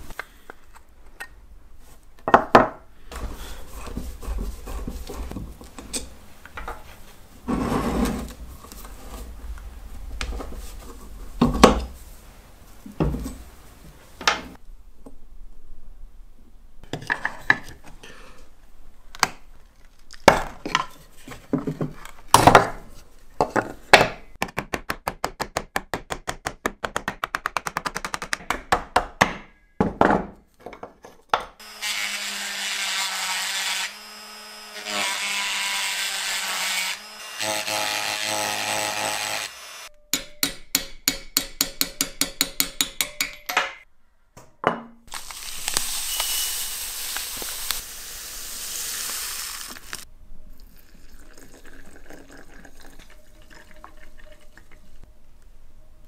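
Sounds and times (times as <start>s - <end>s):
electric power tool humming: 31.6s - 39.9s, 45.2s - 50.0s.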